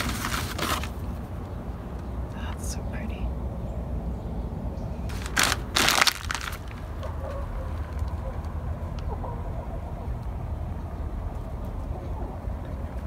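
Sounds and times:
plastic bag crinkling: 0.0 - 1.0, 5.1 - 7.0.

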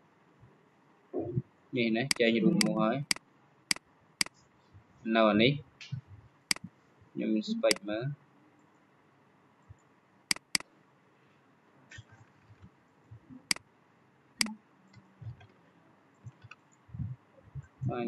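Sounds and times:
computer mouse clicking: 10.3 - 10.6.

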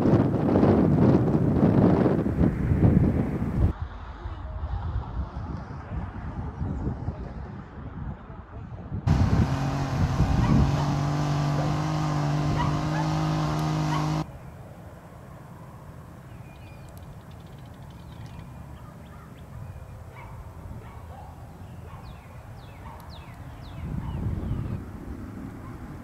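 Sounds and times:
motor engine running: 9.1 - 14.2
small birds chirping: 9.1 - 14.5, 16.2 - 24.8.

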